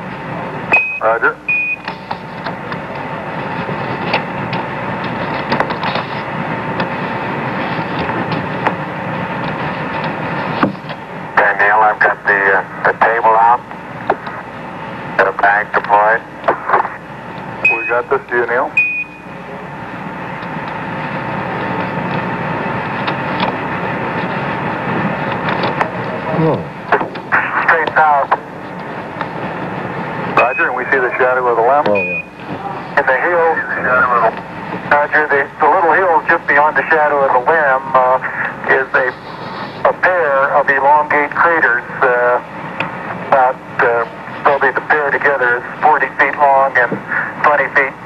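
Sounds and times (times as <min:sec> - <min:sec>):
radio hiss: 0:00.3 - 0:04.1, 0:11.2 - 0:18.8, 0:26.0 - 0:48.0
radio crackles and clicks: 0:01.0 - 0:18.7, 0:26.9 - 0:48.0.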